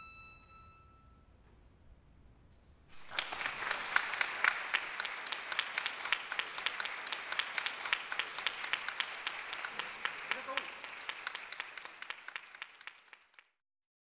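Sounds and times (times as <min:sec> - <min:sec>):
audience applause: 0:02.9 - 0:13.6.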